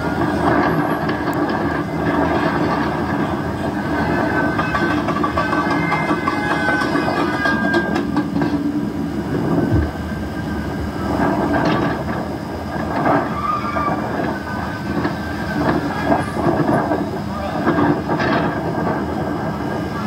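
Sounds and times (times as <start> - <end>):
loud rumble of cars: 0.0 - 20.0
car tyres squealing: 13.1 - 16.5.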